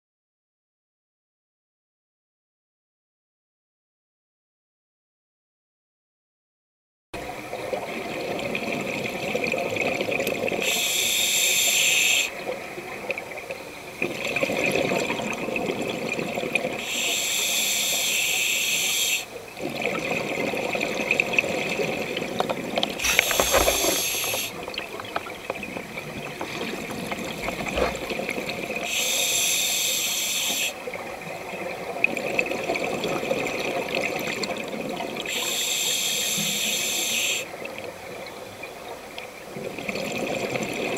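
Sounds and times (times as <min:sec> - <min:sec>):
regulator hiss on inhale: 0:10.6 - 0:12.4, 0:16.8 - 0:19.4, 0:23.0 - 0:24.6, 0:28.8 - 0:30.8, 0:35.3 - 0:37.5
bubbling on exhale: 0:23.0 - 0:24.9.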